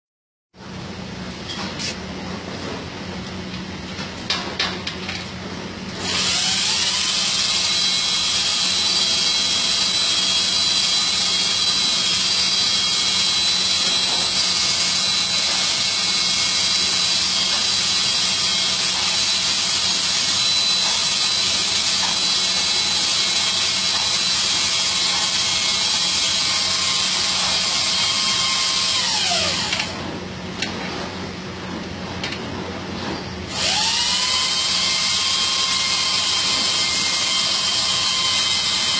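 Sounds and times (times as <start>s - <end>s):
electric motor whine: 6.0s - 30.0s, 33.5s - 38.9s.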